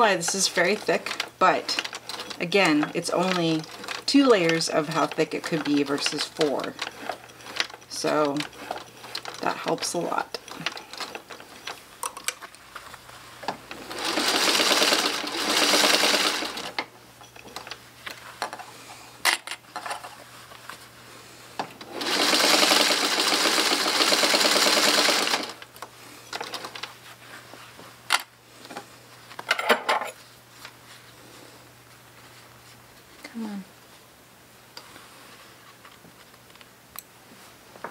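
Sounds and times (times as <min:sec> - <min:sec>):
sewing machine stitching: 0:00.0 - 0:11.8, 0:13.7 - 0:16.8, 0:21.8 - 0:25.7.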